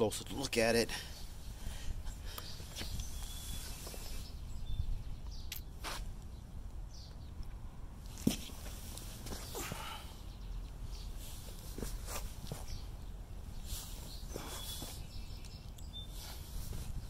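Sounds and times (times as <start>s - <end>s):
footsteps on brick pavers: 8.1s - 9.9s.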